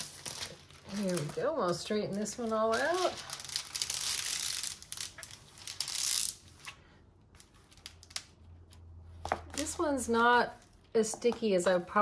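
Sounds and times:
plastic film crinkling: 0.0s - 6.6s.

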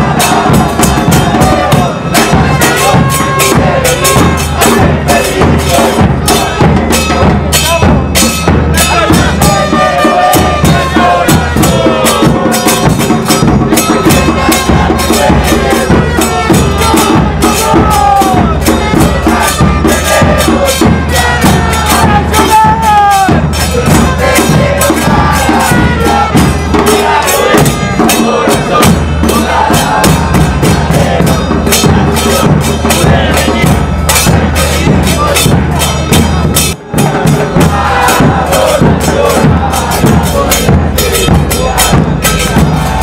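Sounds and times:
drums beating fast rhythm: 0.0s - 43.0s.

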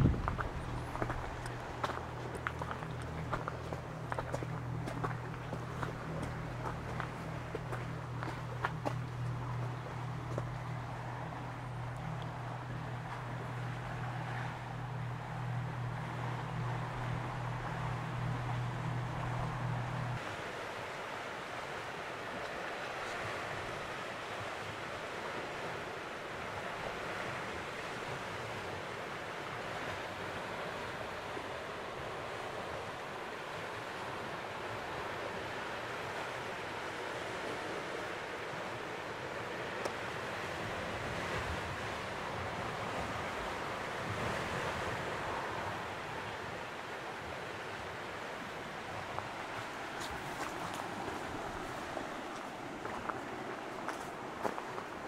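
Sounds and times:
ocean surf: 0.0s - 55.0s
wind: 0.0s - 55.0s.

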